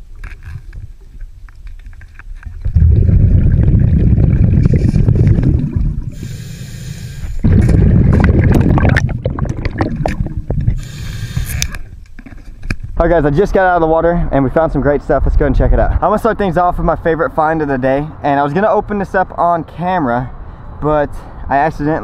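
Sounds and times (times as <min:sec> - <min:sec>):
underwater exhaled bubbles: 0:02.5 - 0:06.5, 0:07.2 - 0:11.6
regulator inhale hiss: 0:06.1 - 0:07.4, 0:10.8 - 0:11.8.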